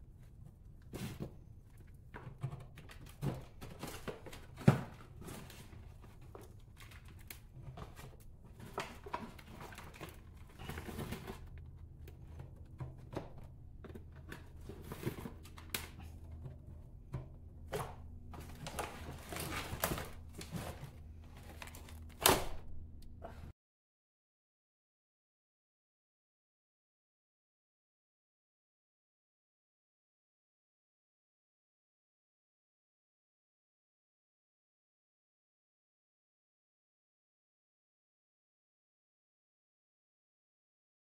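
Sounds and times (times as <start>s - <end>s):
potting mix rustling: 5.1s - 22.2s.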